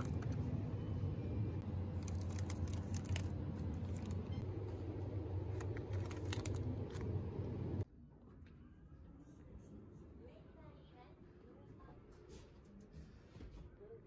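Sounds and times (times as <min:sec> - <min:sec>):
refrigerated shelves humming: 0:00.0 - 0:08.9
plastic food packs crinkling: 0:01.9 - 0:04.2, 0:05.4 - 0:07.2.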